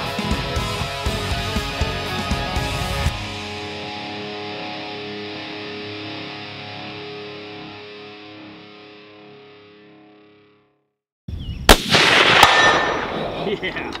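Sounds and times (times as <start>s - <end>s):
guitar music: 0.0s - 10.7s
rifle shot with rolling rumble: 11.7s - 13.4s
bullet striking steel gong: 11.8s - 13.2s.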